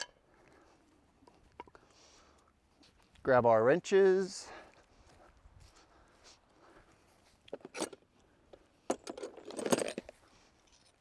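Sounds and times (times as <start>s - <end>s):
metal wrenches clinking: 0.0s - 0.2s, 7.6s - 8.0s, 8.9s - 10.9s.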